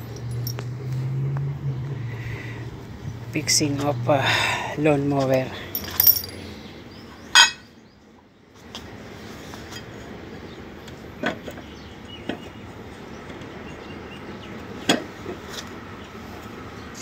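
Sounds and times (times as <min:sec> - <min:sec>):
metallic clinks of tools: 0:00.1 - 0:00.7, 0:05.8 - 0:06.4
low background noise: 0:03.0 - 0:09.3.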